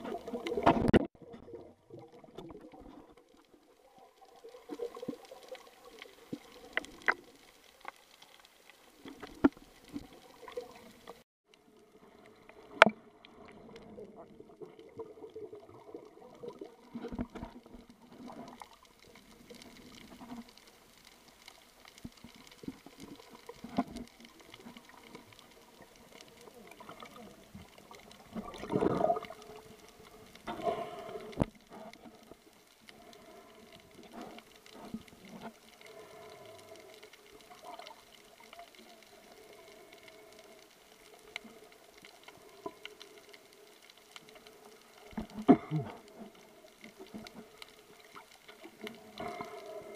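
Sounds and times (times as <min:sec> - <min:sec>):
muffled underwater noise: 0:13.6 - 0:49.9.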